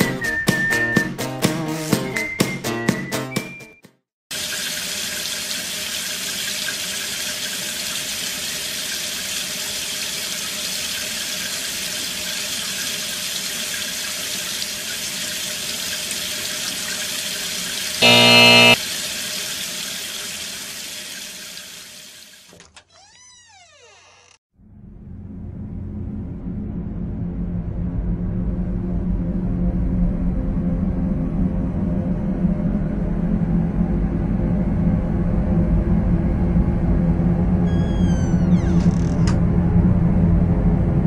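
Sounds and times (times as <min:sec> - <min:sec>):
loud electric buzz: 0:18.0 - 0:18.8.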